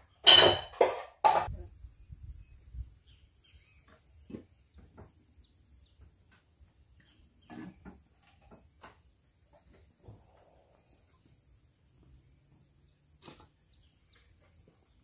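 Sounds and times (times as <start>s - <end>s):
soft knocks and clinks: 0.2s - 1.5s.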